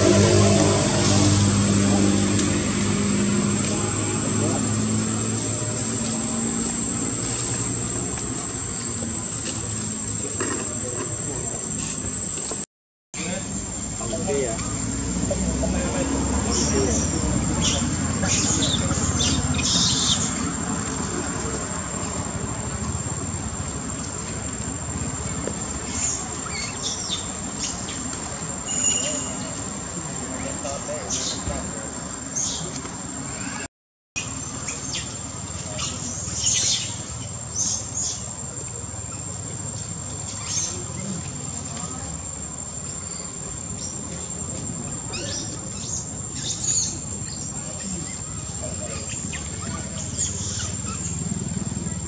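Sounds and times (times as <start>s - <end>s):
low rumble: 0.0s - 8.1s
high-pitched whine: 0.0s - 32.6s
monkeys squealing: 16.4s - 20.6s, 45.1s - 51.6s
brief high squeaks: 28.7s - 29.6s.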